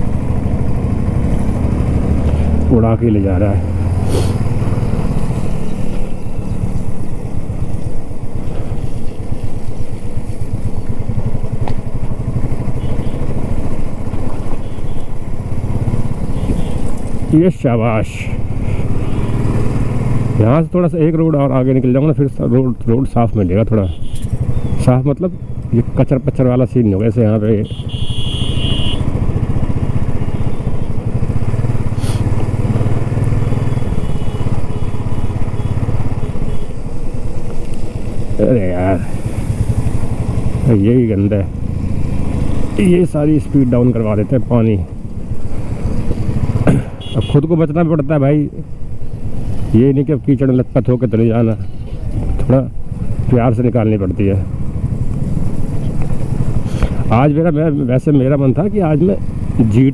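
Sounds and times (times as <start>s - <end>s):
motorcycle engine running: 0.0s - 59.9s
motorcycle engine exhaust thump: 46.5s - 47.2s.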